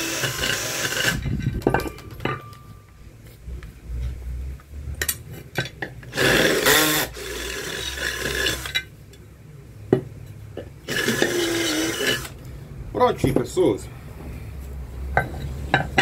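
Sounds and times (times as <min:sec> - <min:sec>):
drill grinding into metal: 0:00.0 - 0:01.2, 0:06.1 - 0:08.8, 0:10.9 - 0:12.4.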